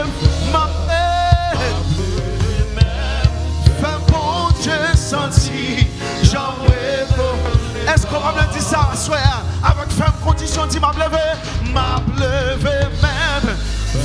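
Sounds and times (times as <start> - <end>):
band playing: 0.0 - 14.0
bass line: 0.0 - 14.0
drum kit beat: 0.0 - 14.0.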